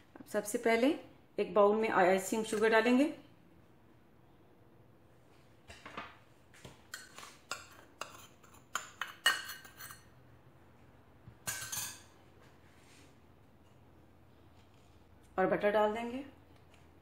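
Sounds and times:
metal spoon clinking in glass bowl: 11.4 - 12.2.

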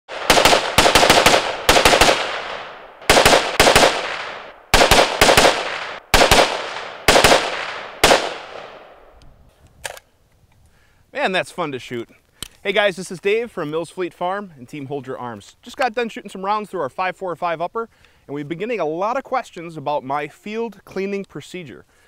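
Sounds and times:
rifle shots with echo: 0.1 - 9.1.

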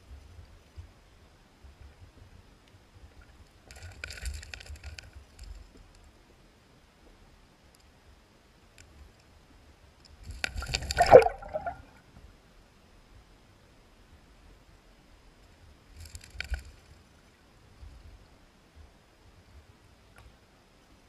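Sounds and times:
aquarium water splashing and gurgling: 10.5 - 12.0.

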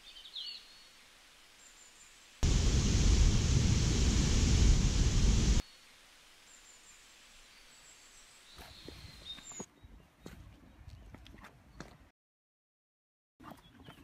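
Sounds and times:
mountain stream rushing: 2.4 - 5.6
footsteps on stone: 8.6 - 12.1.

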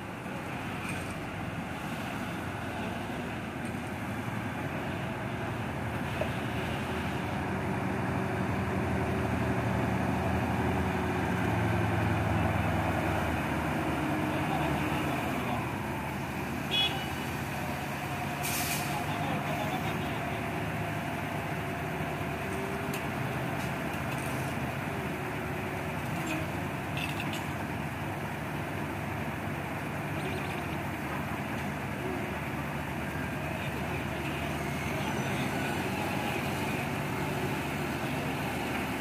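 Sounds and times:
crane and forklift engines: 0.0 - 39.0
brief hiss: 18.4 - 19.0.

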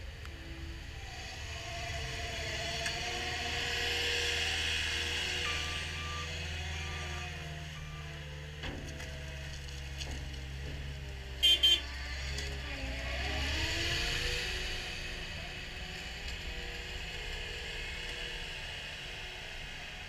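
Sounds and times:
diesel engine of track loader: 0.0 - 20.0
short beeps: 11.4 - 11.8.

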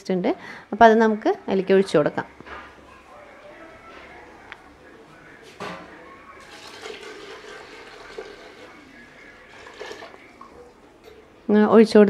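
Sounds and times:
hot water splashing into pot: 6.4 - 11.2.

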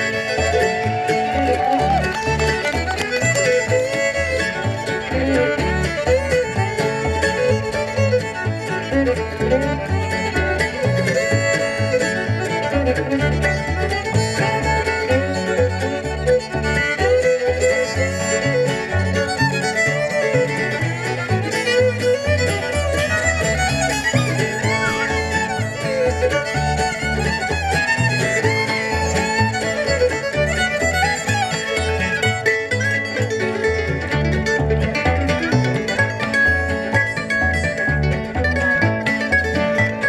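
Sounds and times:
bluegrass string band playing: 0.0 - 40.0
fiddle melody: 0.0 - 40.0
plucked upright bass: 0.0 - 40.0.

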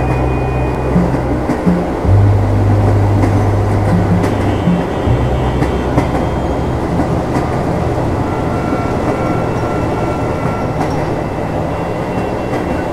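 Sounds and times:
subway train rumble: 0.0 - 12.9
thin steady whine: 0.0 - 12.9
wheels clicking over rail joints: 0.0 - 12.9.

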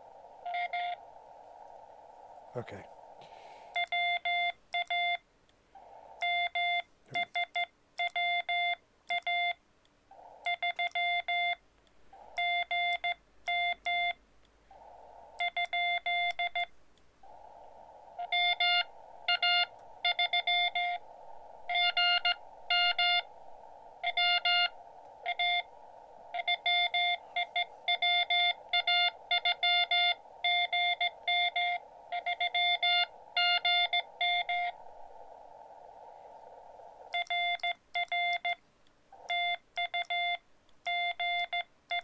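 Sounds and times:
receiver hiss: 0.0 - 42.0
morse code beeps: 3.8 - 5.2, 6.2 - 9.6, 10.4 - 11.6, 12.4 - 14.2, 15.4 - 16.7, 18.2 - 21.0, 21.7 - 23.3, 24.0 - 25.7, 26.3 - 34.8, 37.1 - 38.6, 39.2 - 42.0.

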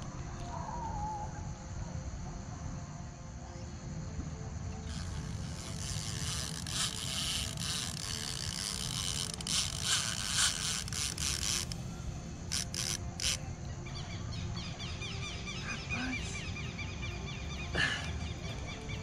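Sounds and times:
night animals chirping: 0.4 - 1.6, 12.6 - 19.0
scratchy rustling hiss: 4.8 - 13.5.

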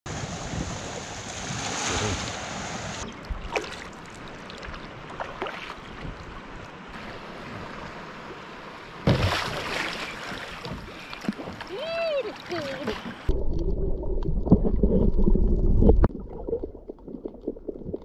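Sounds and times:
wind: 0.0 - 18.0
water noise around kayak: 0.1 - 18.0
paddle splashing in water: 9.0 - 13.3.

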